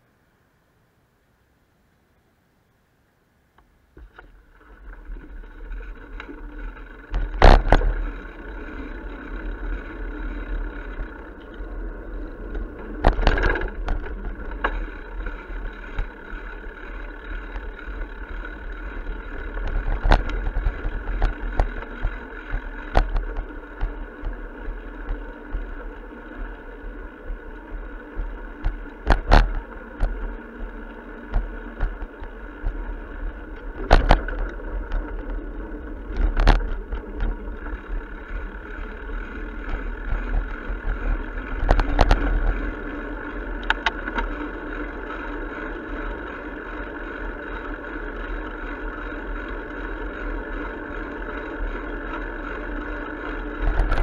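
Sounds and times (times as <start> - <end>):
bicycle rolling noise: 3.6 - 54.0
bike knocks and rattles: 4.0 - 45.8, 53.0 - 54.0.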